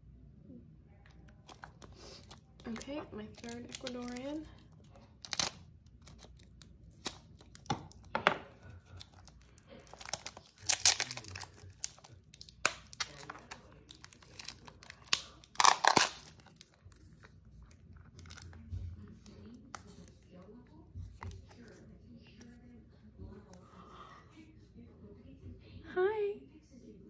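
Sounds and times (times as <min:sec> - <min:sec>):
plastic cup crinkling: 0:01.1 - 0:20.2.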